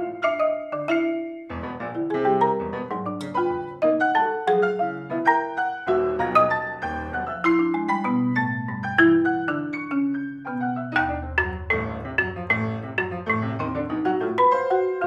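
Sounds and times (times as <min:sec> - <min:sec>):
grand piano: 0:00.0 - 0:15.0
marimba: 0:00.0 - 0:15.0.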